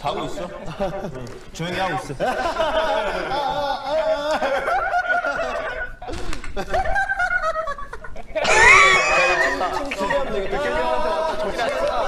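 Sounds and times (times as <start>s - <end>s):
people talking: 0.0s - 6.3s, 8.2s - 12.0s
people laughing and snickering: 0.0s - 12.0s.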